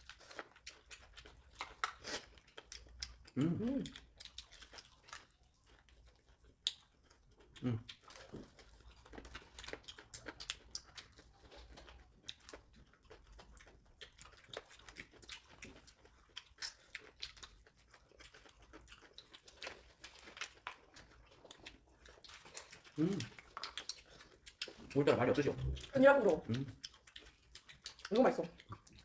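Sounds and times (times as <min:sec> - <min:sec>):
people chewing and smacking: 0:00.0 - 0:29.0.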